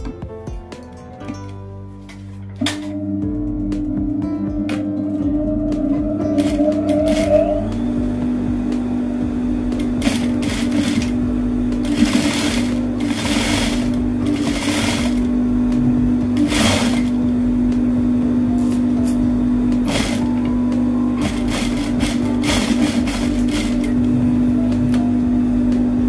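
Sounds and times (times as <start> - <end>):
sewing machine motor hum: 2.7 - 26.0
sewing machine stitching: 6.3 - 7.7, 9.8 - 11.2, 11.8 - 15.3, 16.4 - 17.2, 19.8 - 20.4, 21.2 - 24.0.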